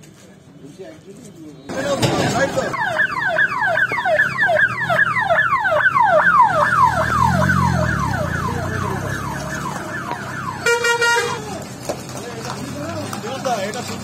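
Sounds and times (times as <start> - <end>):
vehicle engine: 1.7 - 14.0
ambulance siren yelping: 2.4 - 11.5.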